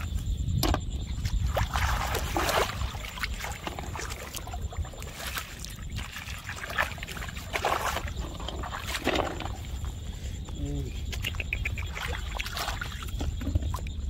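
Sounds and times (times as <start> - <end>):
hands squelching in wet mud: 1.2 - 9.9, 11.0 - 13.2.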